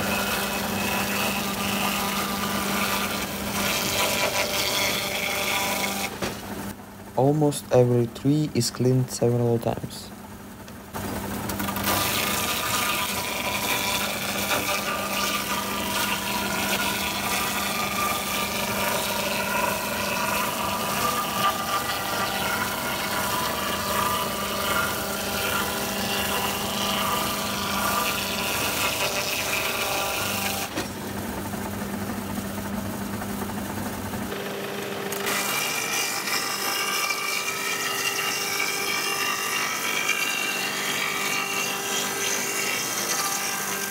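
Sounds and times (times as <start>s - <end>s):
rasp of wood cutting: 0.0s - 6.2s, 11.8s - 30.7s, 35.2s - 43.9s
motor hum with whining tones: 0.0s - 43.9s.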